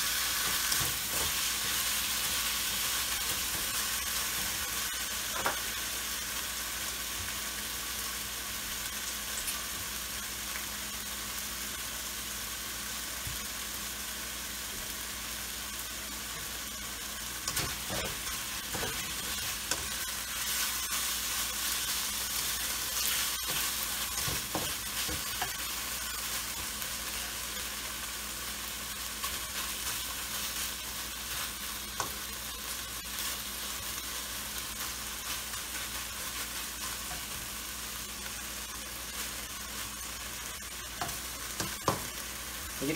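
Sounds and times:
meat sizzling in a wok: 0.0 - 42.9.

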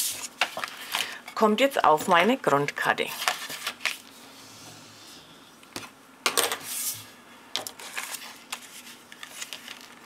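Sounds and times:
paper rustling slide: 6.6 - 7.1, 7.8 - 10.0.

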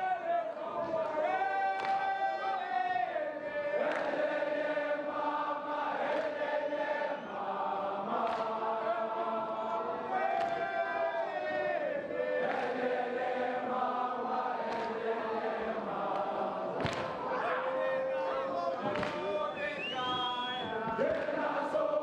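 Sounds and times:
crowd of boys singing chant: 0.0 - 22.0.

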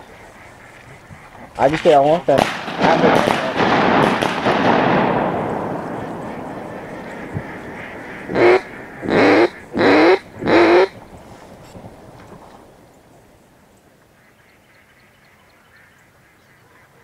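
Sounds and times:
rush of noise: 2.6 - 11.4
nasal duck quacks: 6.0 - 11.0.

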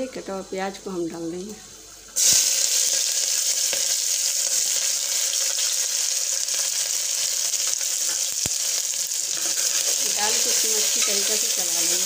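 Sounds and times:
onions sizzling in hot oil: 1.0 - 12.0.

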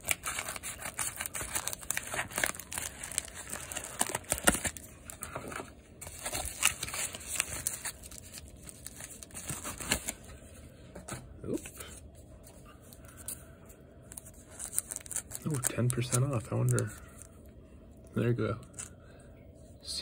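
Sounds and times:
plastic mailer crinkling: 0.0 - 10.3, 14.1 - 17.3.

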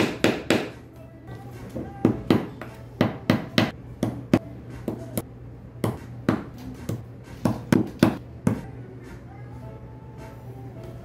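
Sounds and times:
hammer tapping wooden dowels: 0.0 - 0.8.

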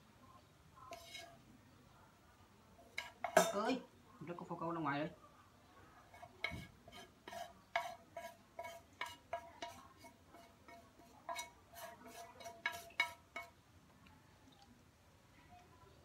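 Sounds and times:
utensil scraping metal frying pan: 0.8 - 1.4, 3.0 - 3.7, 6.1 - 13.6.

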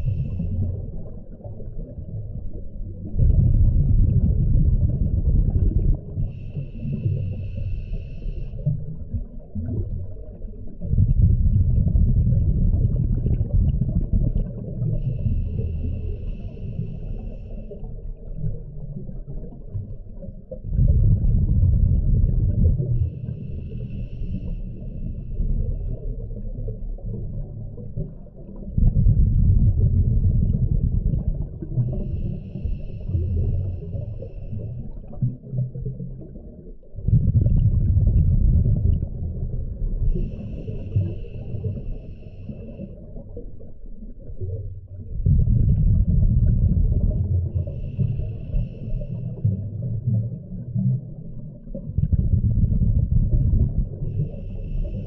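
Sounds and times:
exhaled bubbles rumbling: 0.0 - 55.0
high hissing inhale: 6.3 - 8.7, 15.0 - 17.8, 23.2 - 25.5, 31.9 - 34.9, 40.1 - 43.0, 47.6 - 49.5, 54.1 - 55.0.

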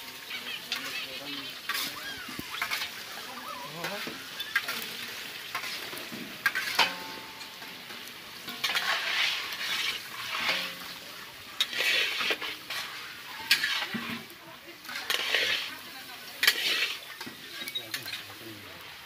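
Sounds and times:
food sizzling in hot oil: 0.0 - 19.0
metal skimmer scraping pan: 1.6 - 18.4
metal clicks on pan: 6.4 - 7.8.

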